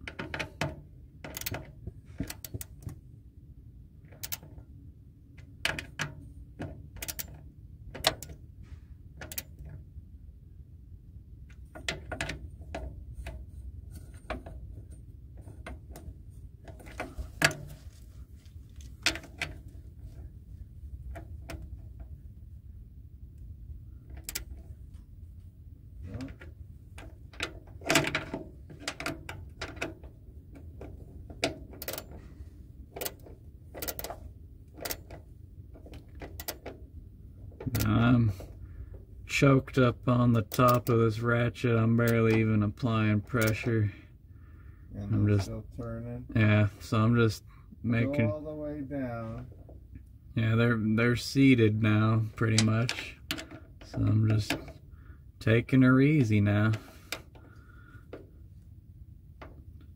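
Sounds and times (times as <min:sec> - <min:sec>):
socket ratchet clicking: 0:01.3 - 0:01.6, 0:04.2 - 0:04.5, 0:07.0 - 0:07.4, 0:31.8 - 0:32.1, 0:33.8 - 0:34.2.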